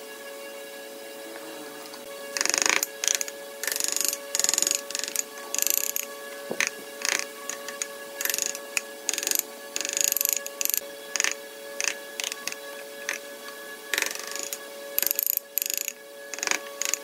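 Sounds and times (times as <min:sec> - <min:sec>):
chisel cutting into wood: 0:02.4 - 0:13.2, 0:13.9 - 0:17.0.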